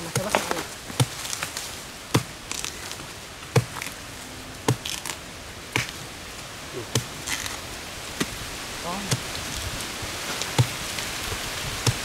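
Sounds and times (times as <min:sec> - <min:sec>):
knife chopping wood: 0:00.0 - 0:02.8, 0:03.5 - 0:04.0, 0:04.6 - 0:05.2, 0:05.8 - 0:06.0, 0:06.9 - 0:07.6, 0:09.0 - 0:09.4, 0:10.4 - 0:10.9, 0:11.8 - 0:12.0.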